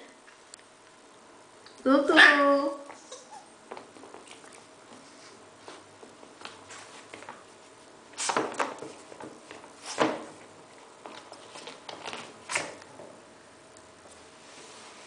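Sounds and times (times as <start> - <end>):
dog scuffing toy on tile floor: 4.9 - 12.8.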